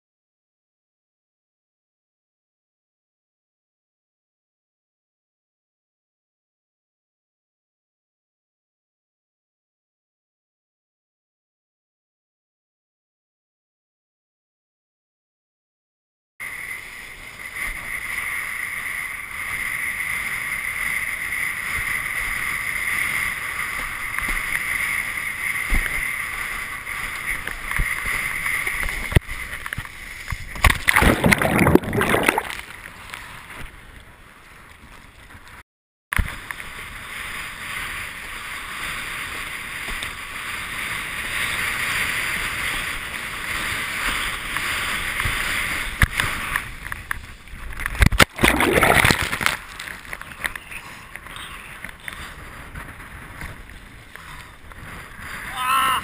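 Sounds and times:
rushing wind and water hiss: 16.4 - 33.8, 36.2 - 56.0
loud splash into water: 30.6 - 32.7, 48.1 - 49.6.

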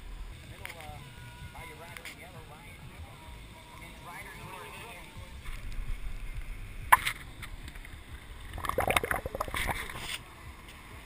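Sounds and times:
low rumble: 5.4 - 10.0
gulping and glugging beer: 8.5 - 10.0.

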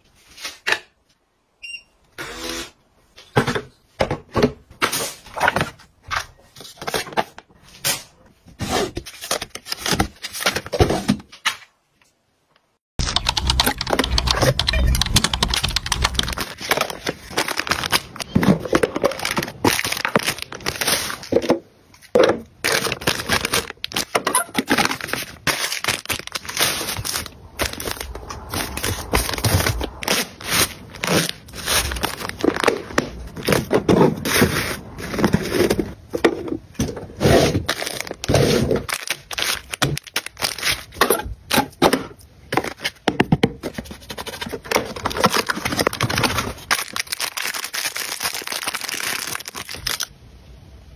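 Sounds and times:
plastic wrap crinkling and tearing: 15.5 - 21.4, 22.6 - 35.8, 37.5 - 41.0, 43.8 - 50.1.

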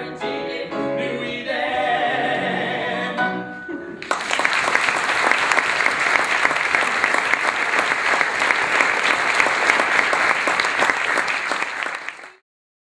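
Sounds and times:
audience applauding: 4.0 - 12.4.

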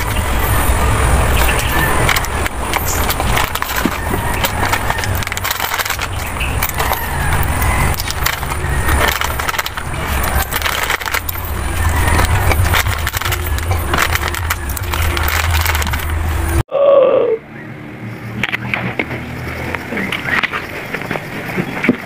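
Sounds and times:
plastic packet crinkling: 0.0 - 16.6.

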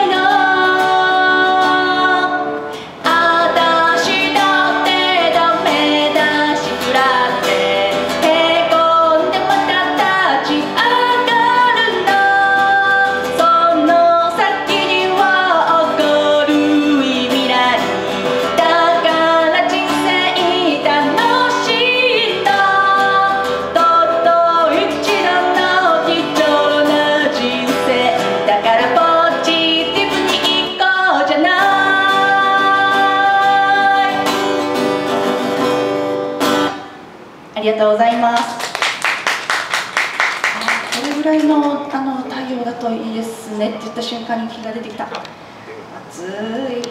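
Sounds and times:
woman singing into microphone: 0.0 - 34.6, 46.0 - 46.9
acoustic guitar: 0.0 - 37.5, 38.1 - 46.9.

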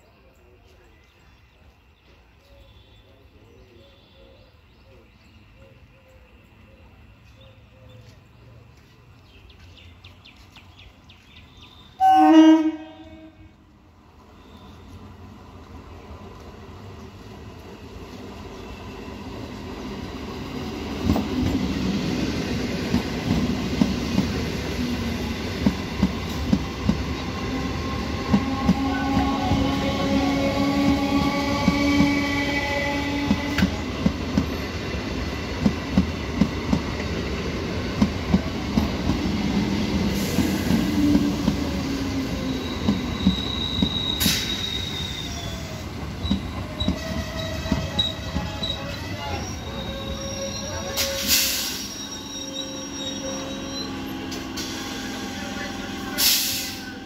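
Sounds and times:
train rumble: 8.0 - 57.0
wheels squealing: 39.8 - 56.1.

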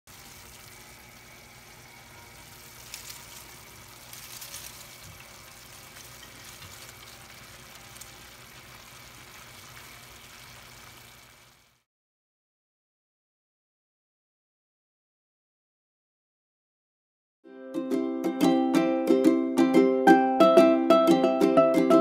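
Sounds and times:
vegetables sizzling in a wok: 0.1 - 11.9.

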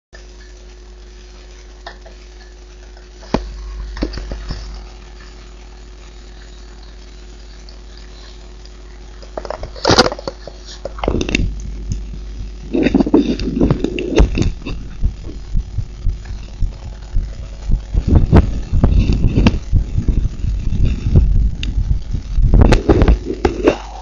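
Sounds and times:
heartbeat thumps: 11.1 - 23.8
rubbing noise: 12.5 - 23.8.

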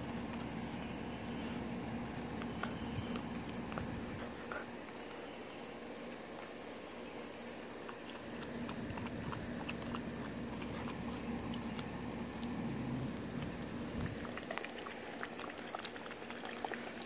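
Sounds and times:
puppies crunching dry food: 0.0 - 6.7, 7.4 - 17.0.

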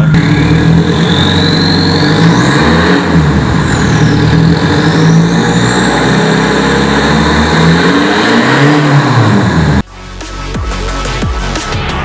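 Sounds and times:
turbo whistle: 0.0 - 7.2
diesel engine revving: 0.0 - 9.9.

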